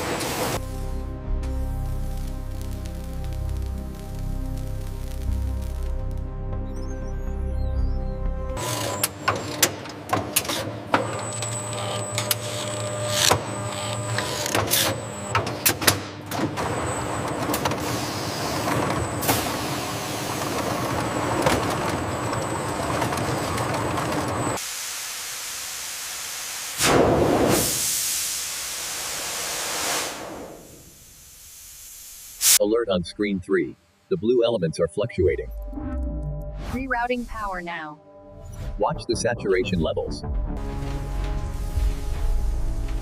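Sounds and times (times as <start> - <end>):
machinery clattering and clicking: 8.6 - 24.6
steam hissing: 24.6 - 32.6
steam venting burst: 24.6 - 32.6.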